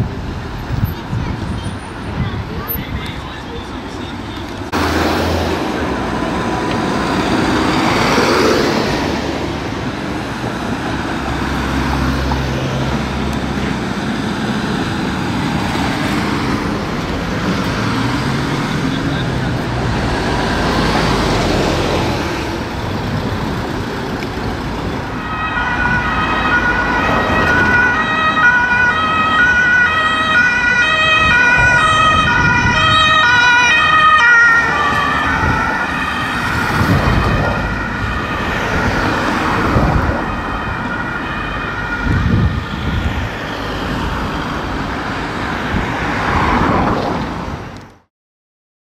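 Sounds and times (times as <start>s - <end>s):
engine and traffic noise: 0.0s - 48.1s
two-tone ambulance siren: 25.0s - 44.2s.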